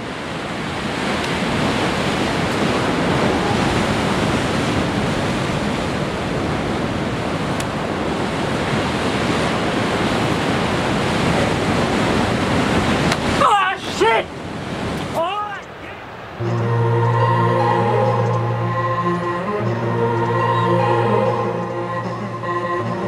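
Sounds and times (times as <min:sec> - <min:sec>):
surf breaking on rocks: 0:00.0 - 0:16.5
wind: 0:00.0 - 0:23.0.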